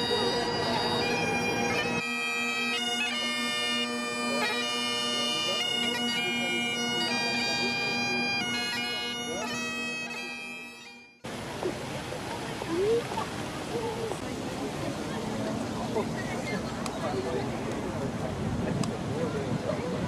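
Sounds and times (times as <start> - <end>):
bagpipes playing over drone: 0.0 - 11.2
street noise: 0.0 - 20.0.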